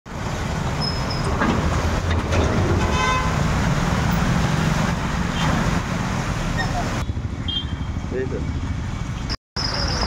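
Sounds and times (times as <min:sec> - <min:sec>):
tyres churning water: 0:00.1 - 0:07.0
vehicle engines running: 0:00.1 - 0:10.0
vehicle horn toot: 0:02.9 - 0:03.4, 0:07.4 - 0:07.9.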